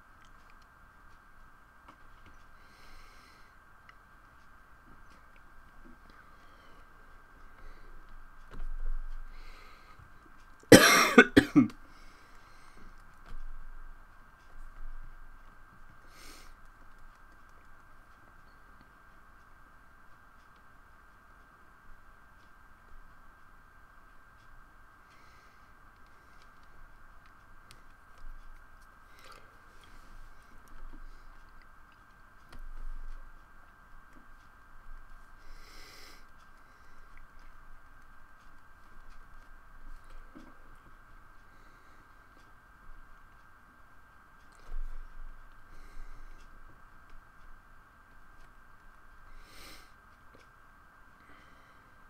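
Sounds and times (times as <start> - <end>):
high-pitched electrical hum: 0.0 - 52.0
person coughing: 10.7 - 11.8.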